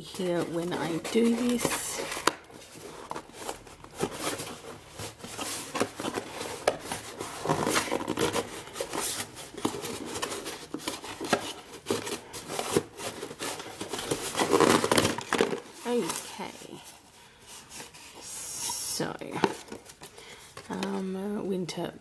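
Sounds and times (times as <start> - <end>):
cardboard ripping and crinkling: 0.0 - 17.0.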